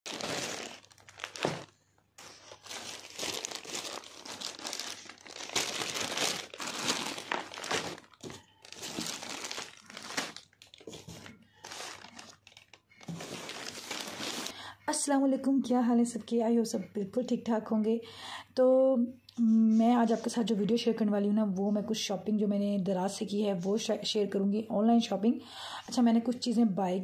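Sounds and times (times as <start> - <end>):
plastic bags crinkling: 0.0 - 14.6.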